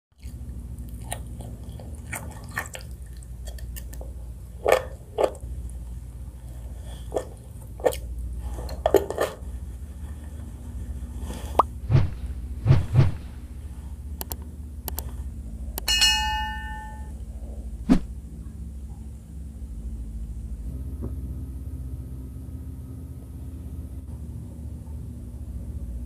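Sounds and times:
wet eating smacks: 0:00.2 - 0:04.0
person chewing food: 0:00.2 - 0:05.8
steady low hum: 0:00.2 - 0:26.0.

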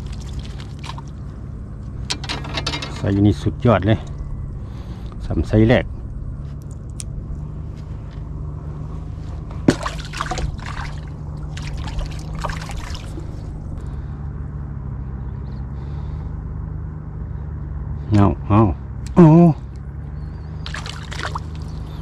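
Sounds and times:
water trickling and sloshing: 0:00.0 - 0:03.4, 0:09.4 - 0:13.9, 0:20.6 - 0:22.0
steady low hum: 0:00.0 - 0:22.0.

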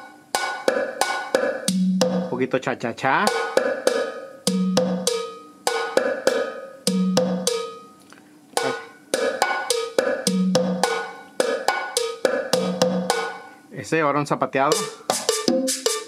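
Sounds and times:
cha-cha percussion loop: 0:00.0 - 0:08.0, 0:08.6 - 0:13.5, 0:14.6 - 0:16.0.

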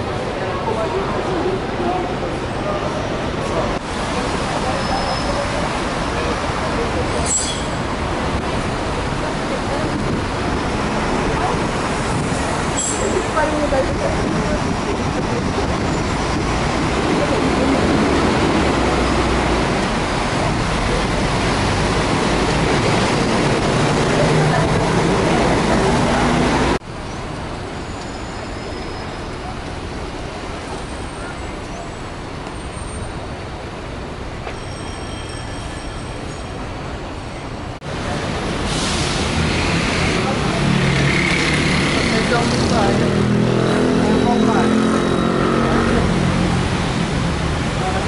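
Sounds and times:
faint voices of passers-by: 0:00.0 - 0:32.5, 0:33.1 - 0:48.0
vehicles passing on wet road: 0:00.0 - 0:34.4, 0:36.1 - 0:48.0.

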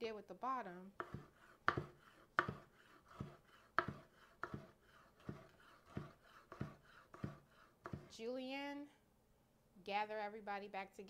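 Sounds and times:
knife cutting on wooden board: 0:01.0 - 0:08.2.

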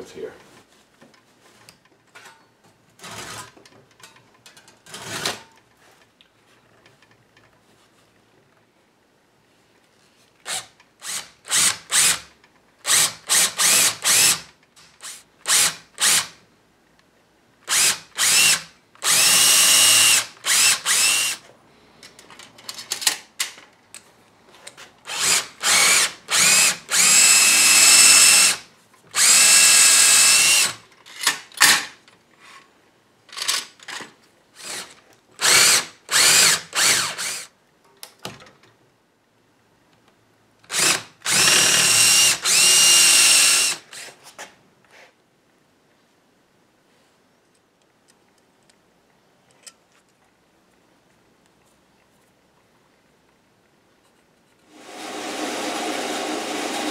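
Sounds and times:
cordless drill motor whining: 0:17.7 - 0:21.4, 0:25.1 - 0:28.6, 0:29.2 - 0:30.7, 0:35.4 - 0:37.5, 0:40.7 - 0:44.0.

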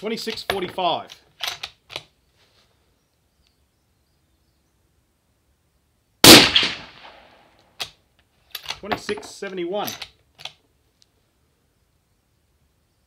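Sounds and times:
quiet outdoor background: 0:00.0 - 0:13.0
rifle bolt metallic clicks: 0:00.3 - 0:02.1, 0:07.6 - 0:09.2, 0:09.8 - 0:10.6.

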